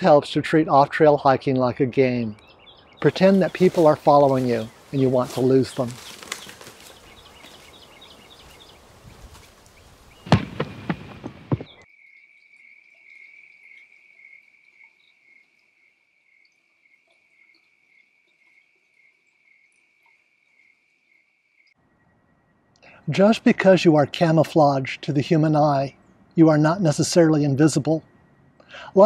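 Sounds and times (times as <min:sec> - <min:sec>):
footsteps crunching on dry leaves: 0:03.0 - 0:11.8.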